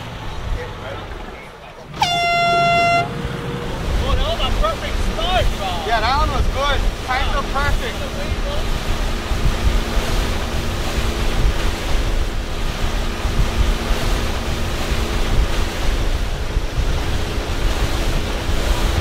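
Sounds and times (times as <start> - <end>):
waves washing: 0.0 - 19.0
wind buffeting microphone: 0.0 - 19.0.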